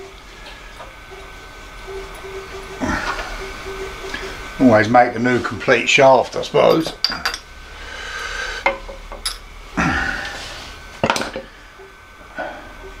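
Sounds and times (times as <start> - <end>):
screwdriver clinking on metal: 6.7 - 7.5.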